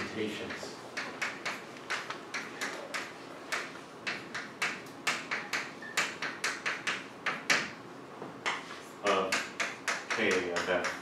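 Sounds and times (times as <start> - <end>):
chalk tapping and scratching: 0.0 - 7.8.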